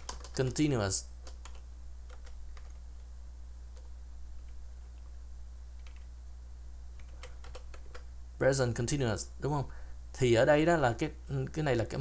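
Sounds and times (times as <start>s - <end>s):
faint keyboard clicks: 0.0s - 0.6s, 7.0s - 8.1s
low electrical hum: 0.0s - 12.0s.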